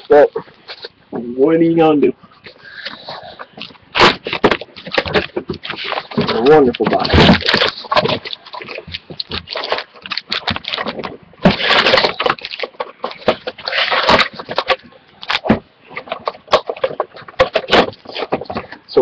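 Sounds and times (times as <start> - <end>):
cardboard box and packs rustling: 2.8 - 19.0.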